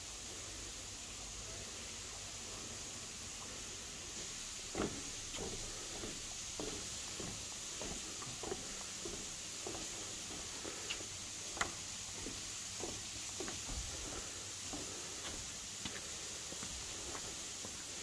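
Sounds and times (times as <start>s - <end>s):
steady high hiss: 0.0s - 18.0s
footsteps on wooden decking: 3.4s - 18.0s.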